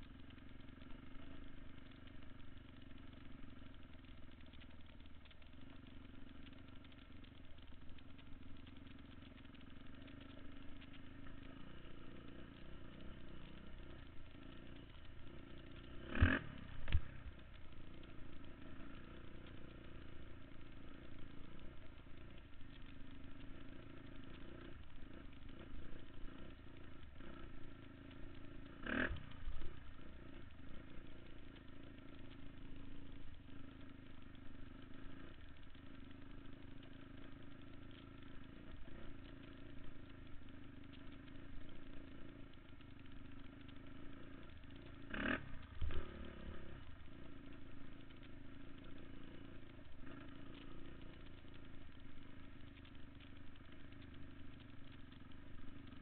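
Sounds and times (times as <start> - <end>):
muffled vehicle engine running: 0.0 - 56.0.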